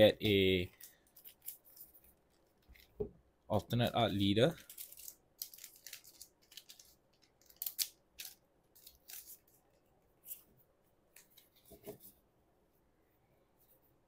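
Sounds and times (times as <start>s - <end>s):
trading cards rustling and sliding: 4.6s - 10.6s.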